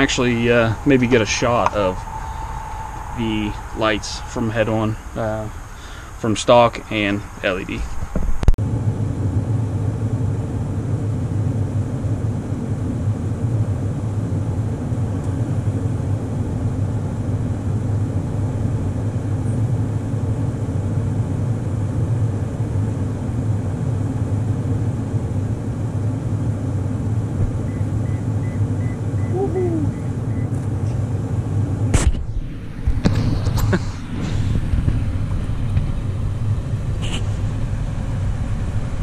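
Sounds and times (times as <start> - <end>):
pickup truck engine idling: 0.0 - 8.0.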